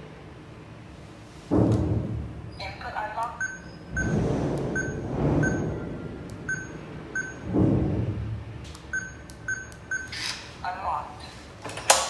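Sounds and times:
keypad beeps: 0:03.3 - 0:04.2, 0:04.8 - 0:05.7, 0:06.4 - 0:07.4, 0:08.8 - 0:10.2.

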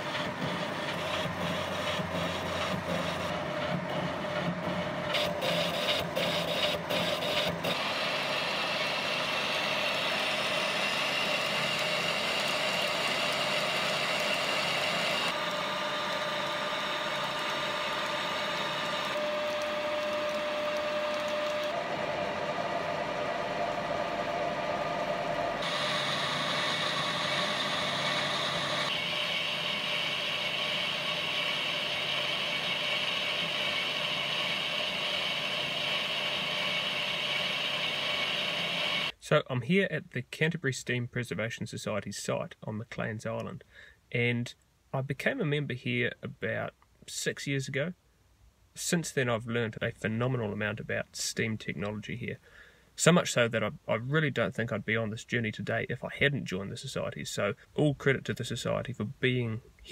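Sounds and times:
metal lathe cutting: 0:00.0 - 0:39.1
whining tones: 0:00.0 - 0:39.1.

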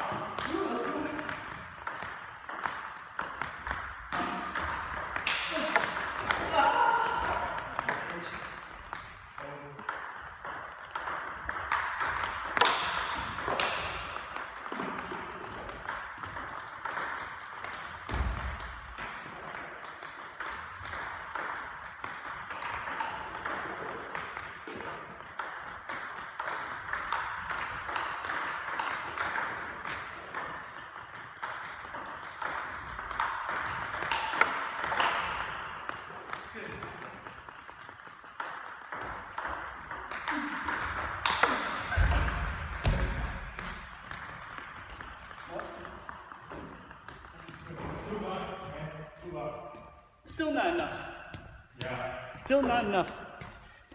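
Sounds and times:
ping pong balls clicking: 0:00.0 - 0:49.2.

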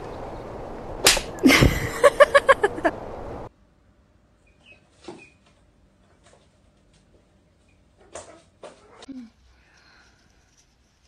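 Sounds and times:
sharp smack: 0:01.0 - 0:01.4.

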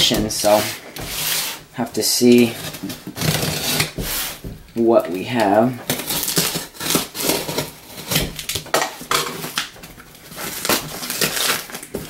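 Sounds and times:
cardboard box scraping and rustling: 0:00.0 - 0:04.5.

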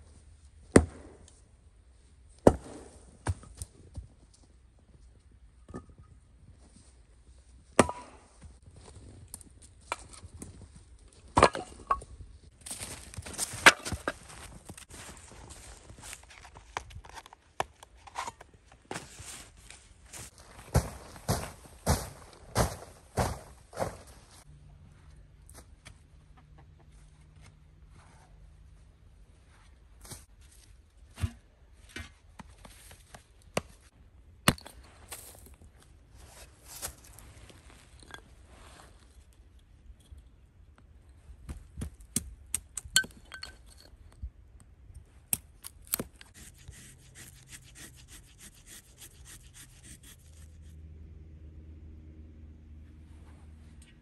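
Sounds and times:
axe chopping wood: 0:00.7 - 0:01.2, 0:02.4 - 0:03.5, 0:07.8 - 0:08.2
hatchet chopping wood: 0:07.8 - 0:08.2.

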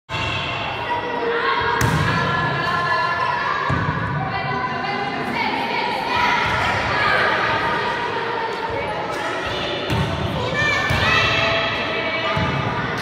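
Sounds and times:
children's voices: 0:00.6 - 0:01.8
volleyball bouncing on gym floor: 0:01.8 - 0:02.2.

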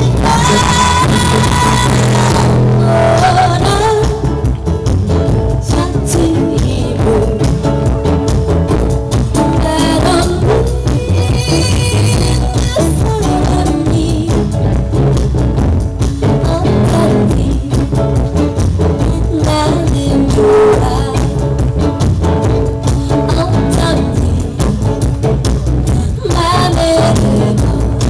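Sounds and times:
live band playing amplified music: 0:00.0 - 0:28.0.

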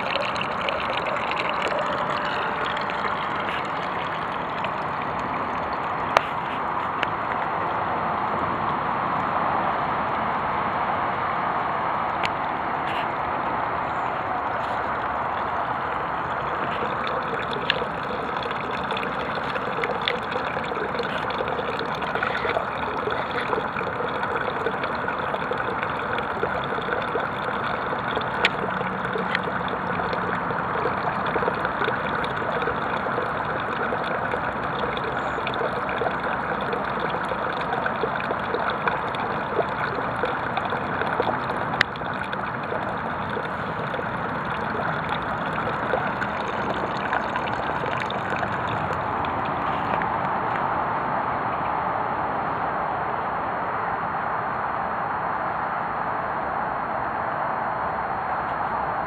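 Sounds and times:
water trickling into a tub: 0:00.0 - 0:08.4, 0:12.9 - 0:50.7.

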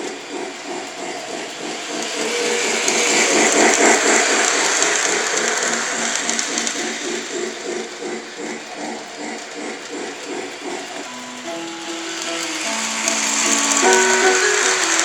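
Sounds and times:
model train wheels clattering: 0:00.0 - 0:15.0
simple melody of held notes: 0:11.1 - 0:15.0.

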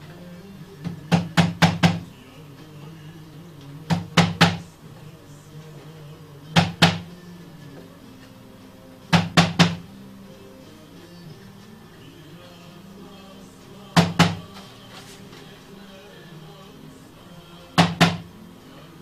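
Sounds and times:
mallet knocking on wood: 0:01.1 - 0:02.0, 0:09.1 - 0:09.8, 0:17.8 - 0:18.2.

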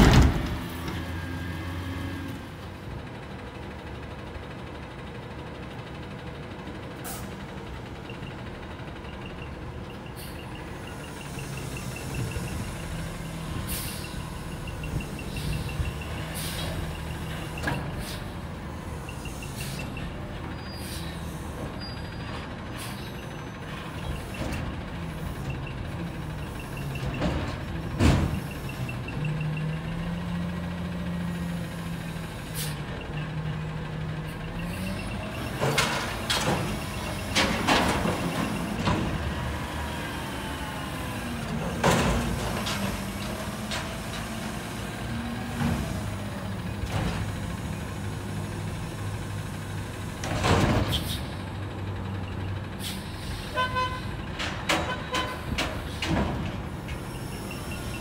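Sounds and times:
loud metal clanks and bangs: 0:00.0 - 0:01.0
garbage truck engine running: 0:00.0 - 0:58.0.

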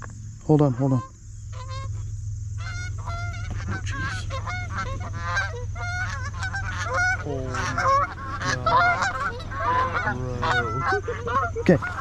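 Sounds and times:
geese honking: 0:00.5 - 0:12.0.

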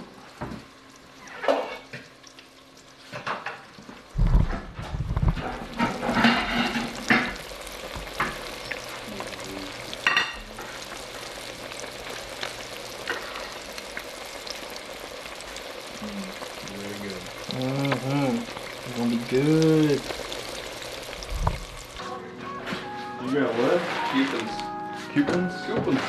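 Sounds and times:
fish deep-frying in oil: 0:00.0 - 0:22.0
sharp pops and knocks: 0:21.2 - 0:21.8.

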